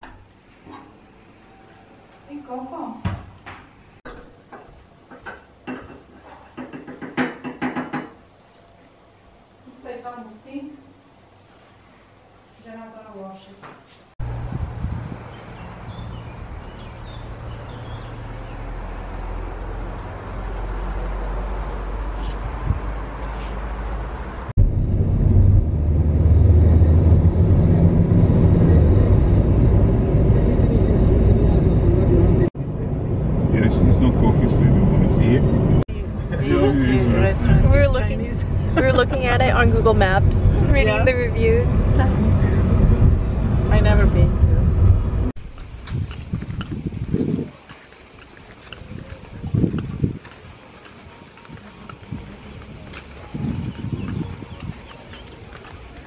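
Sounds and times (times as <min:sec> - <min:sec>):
car road and engine noise: 0:14.2 - 0:56.0.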